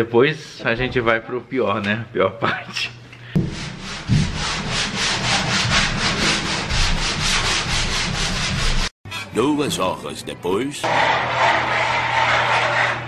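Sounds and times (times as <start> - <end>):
sanding block scraping plaster: 3.4 - 8.9, 10.9 - 13.0.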